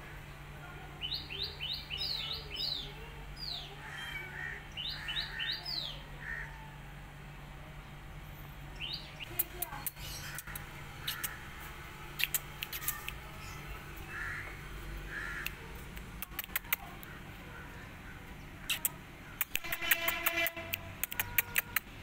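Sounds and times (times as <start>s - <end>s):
sharp clicks: 9.2s - 11.4s, 12.1s - 13.2s, 15.4s - 17.1s, 18.6s - 21.9s.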